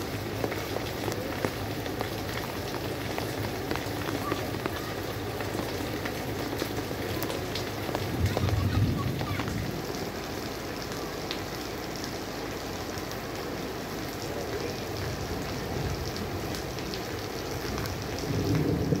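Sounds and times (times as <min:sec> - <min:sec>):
floodwater rushing: 0:00.0 - 0:19.0
heavy rain: 0:00.0 - 0:19.0.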